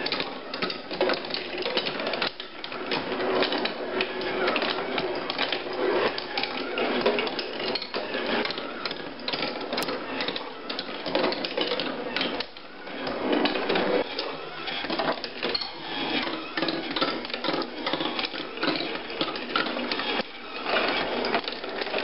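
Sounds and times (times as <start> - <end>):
marbles clattering on wooden tracks: 0.0 - 22.0.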